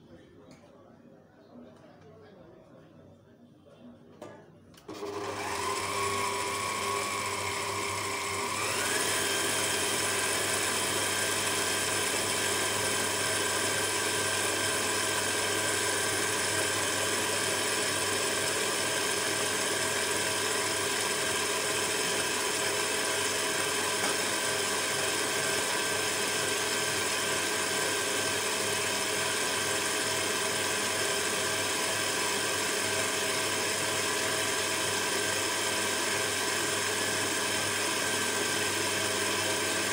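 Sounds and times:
stand mixer motor whining: 0:04.8 - 0:39.9.

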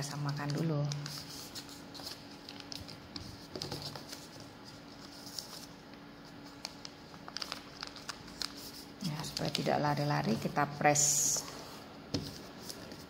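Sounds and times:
paper rustling and clicking: 0:00.3 - 0:05.7, 0:06.4 - 0:10.4.

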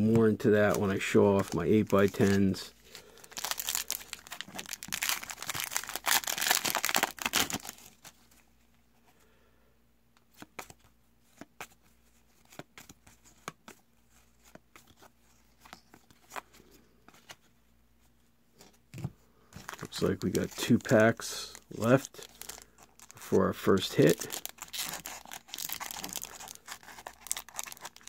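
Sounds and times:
wrapper tearing and crinkling: 0:03.1 - 0:08.1, 0:19.6 - 0:23.2, 0:23.8 - 0:28.0.

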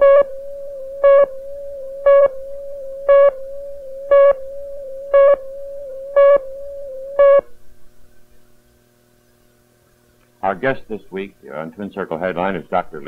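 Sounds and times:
countdown beeps: 0:00.0 - 0:00.3, 0:02.1 - 0:02.4, 0:03.1 - 0:03.4, 0:04.1 - 0:04.4, 0:05.2 - 0:05.4, 0:06.2 - 0:06.4, 0:07.2 - 0:07.5
steady test tone: 0:00.0 - 0:07.8.

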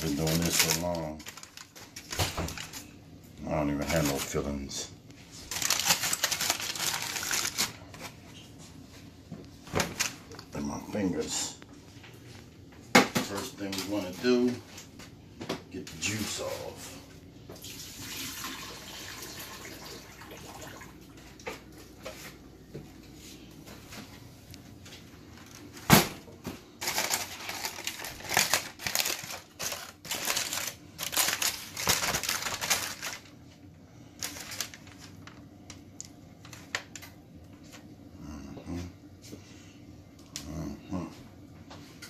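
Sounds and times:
aluminium foil crinkling: 0:00.0 - 0:08.5, 0:26.7 - 0:37.9
liquid pouring into a sink: 0:17.5 - 0:21.1.

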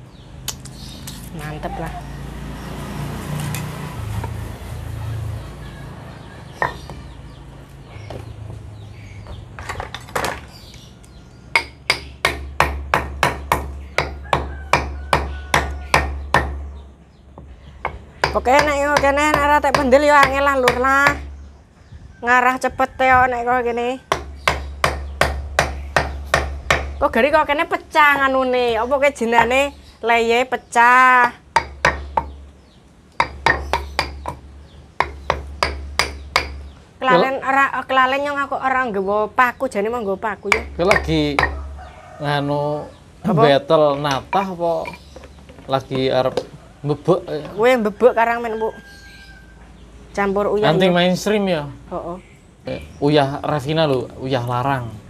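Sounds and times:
hammer knocking on wooden pestle: 0:06.6 - 0:07.0, 0:11.6 - 0:16.7, 0:17.8 - 0:21.3, 0:24.1 - 0:27.0, 0:29.3 - 0:29.7, 0:31.5 - 0:32.4, 0:33.2 - 0:34.4, 0:35.0 - 0:36.7, 0:40.5 - 0:41.6.

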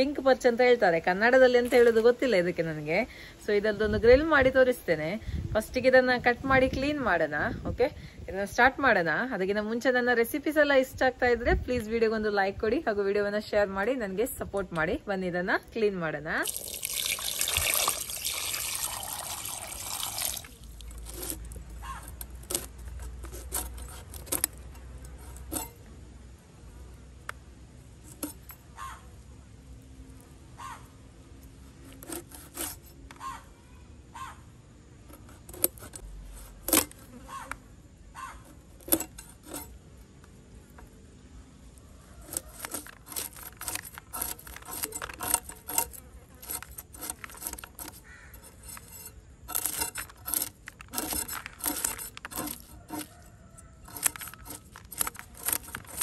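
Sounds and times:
tap water running: 0:16.4 - 0:20.7
knife scraping fish scales: 0:16.4 - 0:25.9, 0:28.0 - 0:28.8, 0:31.5 - 0:33.3, 0:35.0 - 0:37.6, 0:38.2 - 0:40.2, 0:42.1 - 0:56.0.

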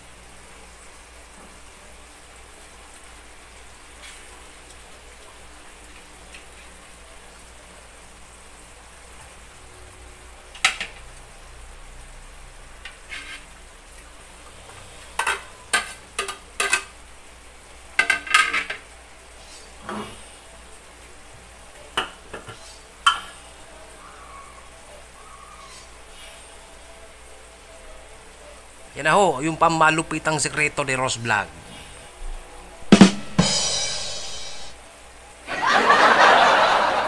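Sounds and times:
food simmering and sizzling: 0:00.0 - 0:37.0
dishes and utensil clinking: 0:15.2 - 0:17.0, 0:18.0 - 0:18.8, 0:22.0 - 0:23.4.

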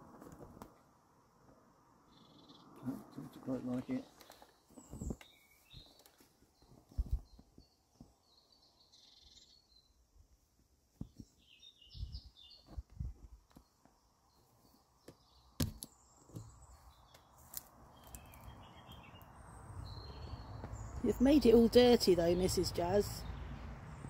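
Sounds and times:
faint bird chirps: 0:02.0 - 0:10.0, 0:11.0 - 0:12.8, 0:13.6 - 0:21.5.

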